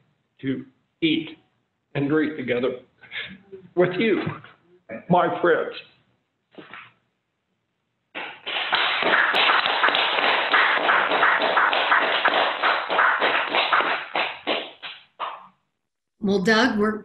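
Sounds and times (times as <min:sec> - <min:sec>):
applause through video call: 0:08.1 - 0:15.6.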